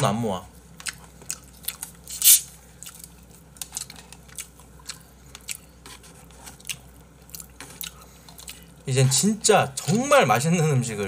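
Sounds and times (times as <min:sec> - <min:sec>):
person chewing: 0:00.7 - 0:08.8.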